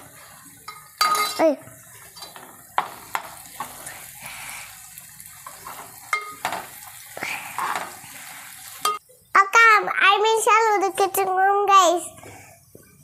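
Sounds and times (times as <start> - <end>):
curry sizzling: 0.0 - 11.4
spoon stirring in metal pot: 0.6 - 1.4, 2.0 - 3.9, 5.4 - 6.8.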